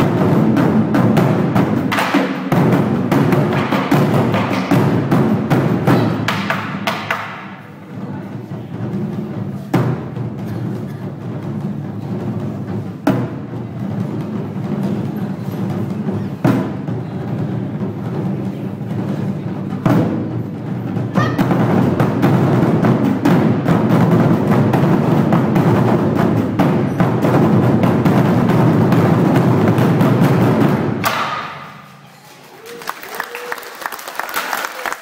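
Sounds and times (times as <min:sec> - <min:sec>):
drum ensemble beating drums: 0:00.0 - 0:32.0.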